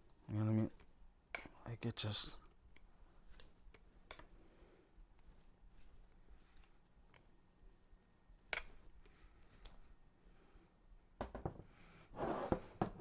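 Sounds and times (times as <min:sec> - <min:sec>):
light clicks of handling: 0:05.1 - 0:09.9
rustles and knocks: 0:11.2 - 0:13.0.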